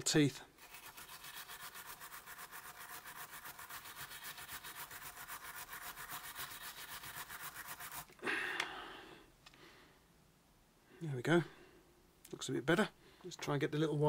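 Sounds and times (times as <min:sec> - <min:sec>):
wire brush scrubbing metal: 0:00.6 - 0:08.1.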